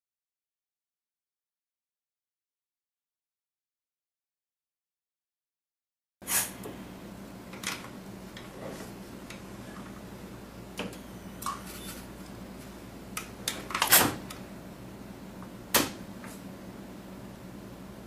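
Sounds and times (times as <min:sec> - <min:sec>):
steady low hum: 0:06.5 - 0:18.0.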